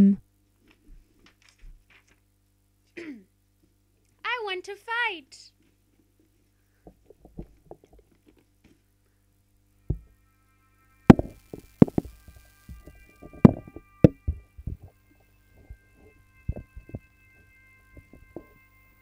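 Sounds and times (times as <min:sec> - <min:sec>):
faint steady high tones: 0:09.5 - 0:19.0.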